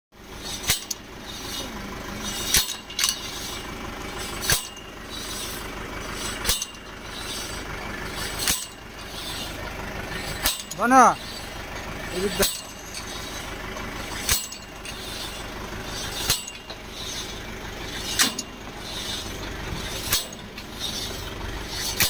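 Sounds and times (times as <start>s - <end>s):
drilling rig engine running: 0.2s - 22.0s
metallic clank on steel rod: 0.4s - 3.6s, 4.2s - 5.6s, 6.2s - 7.5s, 8.2s - 9.5s, 10.1s - 11.5s, 12.3s - 17.3s, 17.9s - 19.2s, 19.8s - 22.0s.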